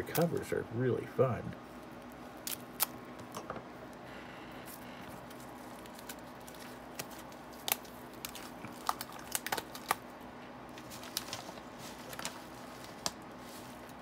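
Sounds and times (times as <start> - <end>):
plastic shrink-wrap crinkling: 4.6 - 14.0.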